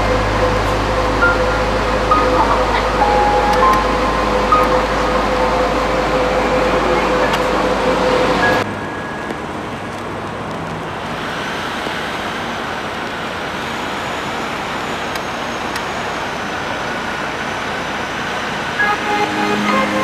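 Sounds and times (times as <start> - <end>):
road traffic: 0.0 - 20.0.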